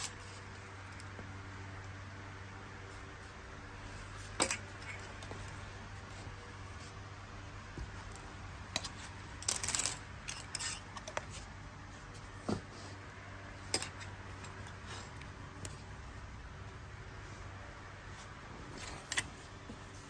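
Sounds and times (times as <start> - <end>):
steady low hum: 0.0 - 20.0
clothes hangers clicking on metal rail: 8.7 - 11.3.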